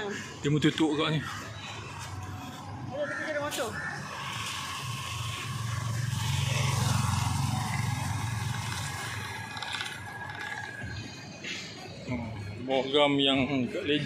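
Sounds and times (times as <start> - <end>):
vehicle engine rumbling past: 4.7 - 9.6.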